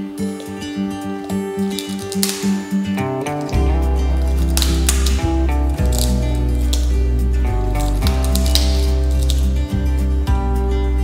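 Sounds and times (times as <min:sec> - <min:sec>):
crunches of cracker being bitten: 0:00.2 - 0:09.7
background music with strong bass: 0:03.0 - 0:11.0.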